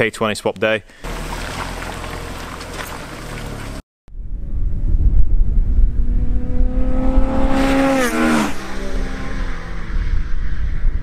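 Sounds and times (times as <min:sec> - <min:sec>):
sports cars driving past: 0:01.0 - 0:03.8, 0:06.0 - 0:11.0
loud low engine rumble: 0:01.0 - 0:04.7.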